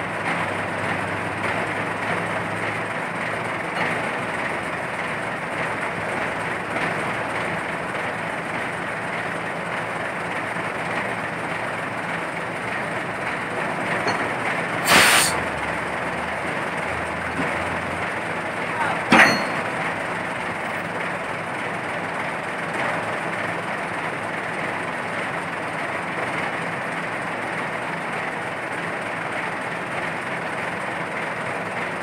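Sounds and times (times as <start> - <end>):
heavy diesel machinery running: 0.0 - 32.0
sharp burst of noise: 14.8 - 15.4.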